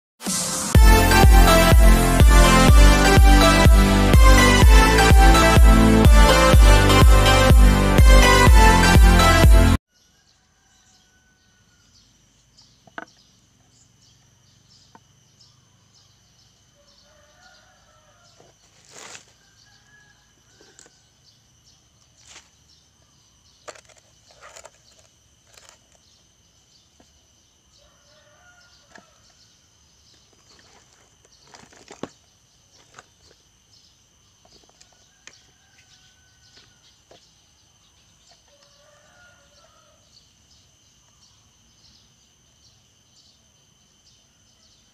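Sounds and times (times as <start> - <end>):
high insect drone: 10.0 - 44.9
tools clicking and knocking on wood: 12.8 - 13.2.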